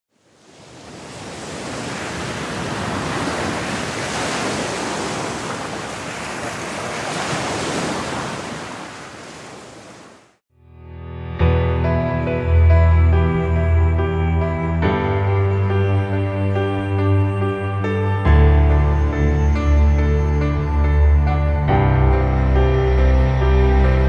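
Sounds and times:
waves washing: 0.1s - 10.4s.

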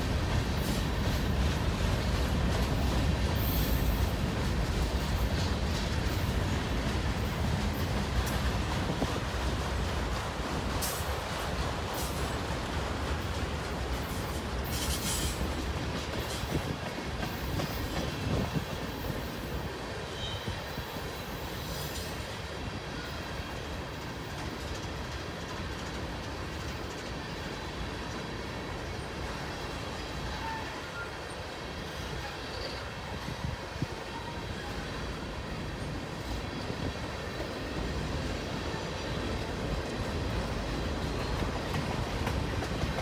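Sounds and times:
freight train rolling past: 0.0s - 43.0s
steel wheels clattering on rail: 0.0s - 43.0s.

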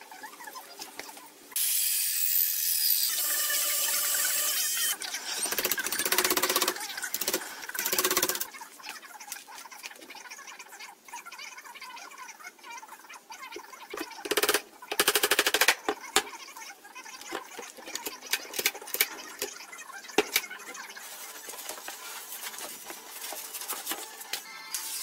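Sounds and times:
rapid mechanical clicking: 5.4s - 8.5s, 14.2s - 15.8s.

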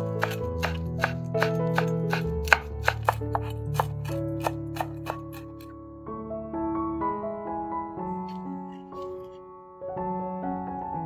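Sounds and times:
knife chopping on wooden board: 0.0s - 5.7s
background music with held notes: 0.0s - 11.0s.

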